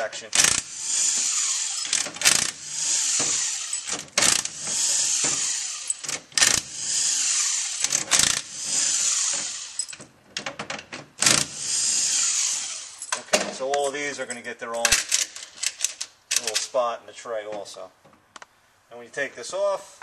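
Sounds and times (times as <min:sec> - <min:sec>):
power driver whirring: 0:00.4 - 0:10.0, 0:11.2 - 0:13.0
steel bolts clinking: 0:03.2 - 0:06.6.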